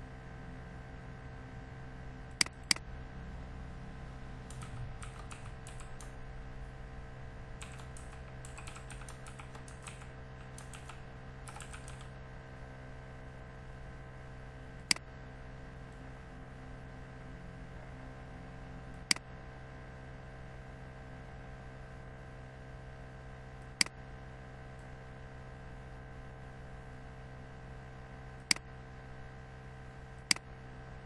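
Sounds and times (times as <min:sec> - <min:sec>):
low hum: 0:00.0 - 0:31.0
computer keyboard typing: 0:04.5 - 0:06.2, 0:07.6 - 0:12.2
mouse clicks: 0:04.5 - 0:06.2, 0:07.6 - 0:12.1, 0:30.2 - 0:30.4.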